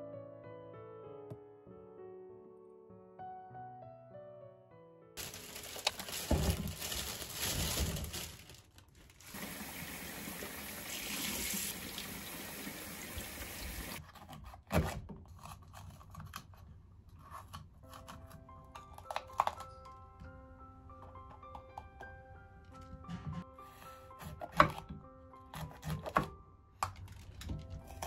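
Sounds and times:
plastic bag rustling: 0:05.2 - 0:09.7.

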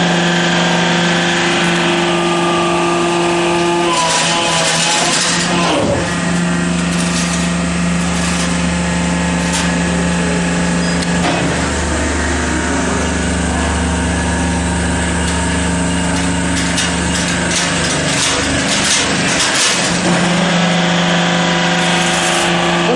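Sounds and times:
machine motor hum: 0:00.0 - 0:22.9
metallic clicks and clanks: 0:16.1 - 0:20.4.

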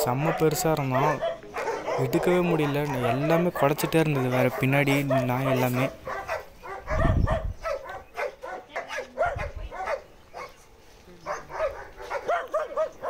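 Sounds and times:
dogs barking: 0:00.0 - 0:13.0
low microphone rumbles: 0:06.0 - 0:07.8.

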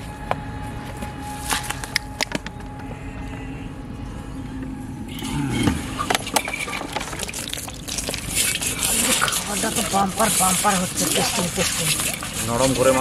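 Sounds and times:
steady background hum: 0:00.0 - 0:13.0
grain pouring into metal basin: 0:06.8 - 0:13.0.

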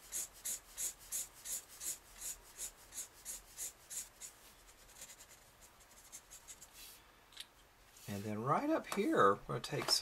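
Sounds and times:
marker scratching on paper: 0:00.0 - 0:07.0.

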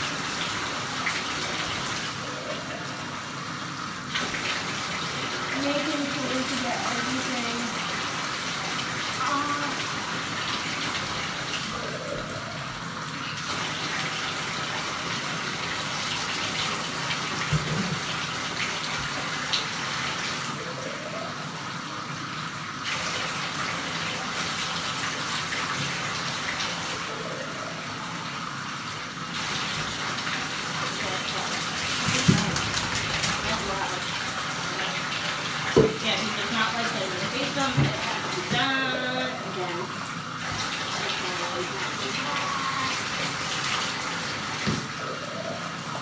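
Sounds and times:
cup filling with water: 0:00.0 - 0:46.0
faucet running into bathtub: 0:03.9 - 0:20.6, 0:29.4 - 0:46.0.

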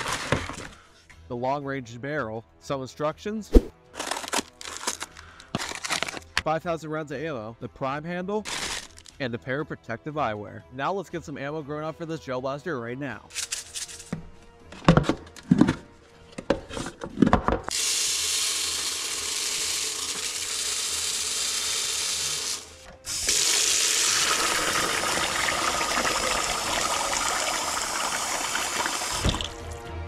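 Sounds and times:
beads pouring into plastic tub: 0:08.5 - 0:09.1
tap water running into tub: 0:17.7 - 0:29.8.

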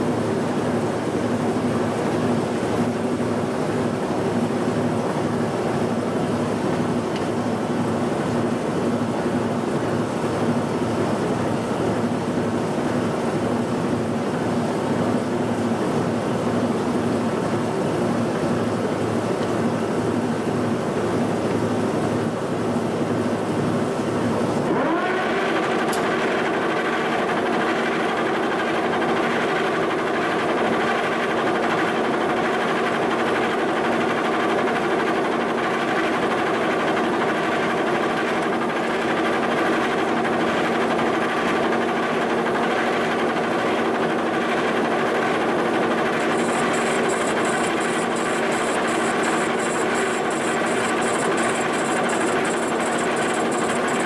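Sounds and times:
high pulsing whine: 0:46.1 - 0:54.0
milling machine cutting metal: 0:46.2 - 0:54.0.

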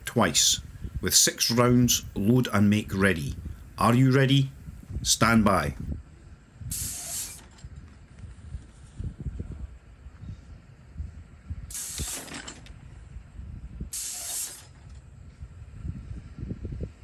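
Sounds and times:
target mechanism hissing bursts: 0:06.6 - 0:07.6, 0:11.7 - 0:12.6, 0:13.9 - 0:14.9.

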